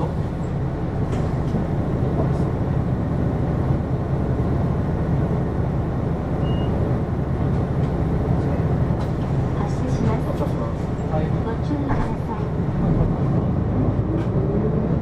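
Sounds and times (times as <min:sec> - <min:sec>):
bus engine and road rumble: 0:00.0 - 0:15.0.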